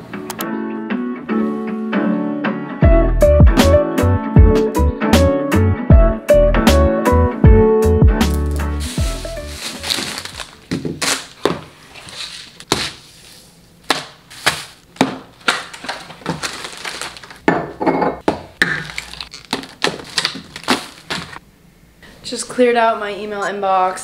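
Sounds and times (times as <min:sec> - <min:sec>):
plastic packaging crinkling: 0:08.3 - 0:13.0, 0:14.3 - 0:17.5, 0:18.6 - 0:21.4
groceries set down on countertop: 0:09.5 - 0:11.7, 0:14.0 - 0:21.4.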